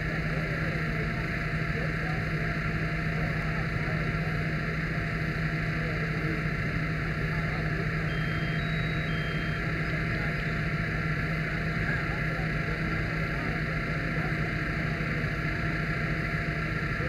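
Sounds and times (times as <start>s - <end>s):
fire engine droning: 0.0s - 17.0s
faint electronic beeps: 7.8s - 10.9s.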